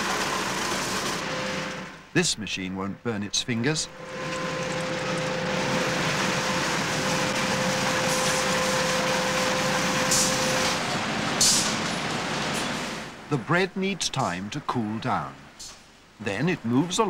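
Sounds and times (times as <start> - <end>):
machine mechanical drone: 0.0 - 2.1, 3.8 - 13.3.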